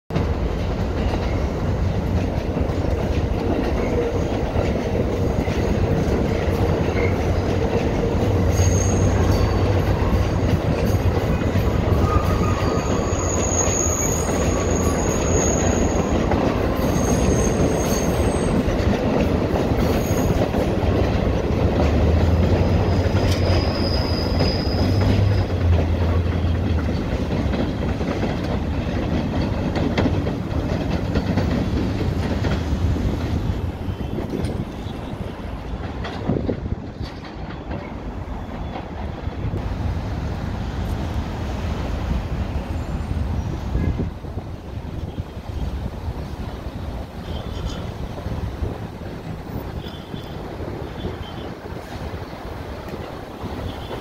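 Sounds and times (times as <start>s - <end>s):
subway train wheels rumbling: 0.1s - 54.0s
high-pitched wheel squeal: 8.5s - 9.8s, 11.9s - 18.6s, 19.8s - 20.6s, 22.7s - 25.4s.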